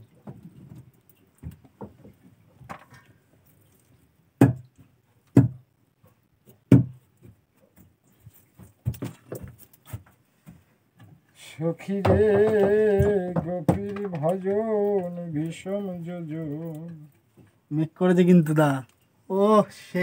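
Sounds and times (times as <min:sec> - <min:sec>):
light taps and knocks: 0:04.4 - 0:05.7, 0:06.4 - 0:11.2, 0:11.9 - 0:15.3
short hollow thumps: 0:11.8 - 0:15.2.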